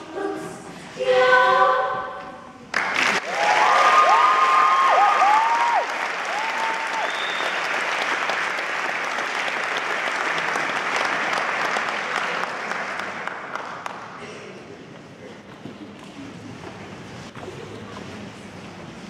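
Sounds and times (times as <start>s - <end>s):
women singing a cappella: 0.0s - 2.6s
audience applauding: 2.7s - 14.2s
people whooping: 3.2s - 7.8s.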